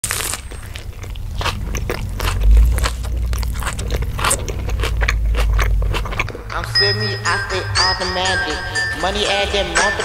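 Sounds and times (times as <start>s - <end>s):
crunchy chewing of fried food: 0.0s - 6.7s
low hum: 0.0s - 9.4s.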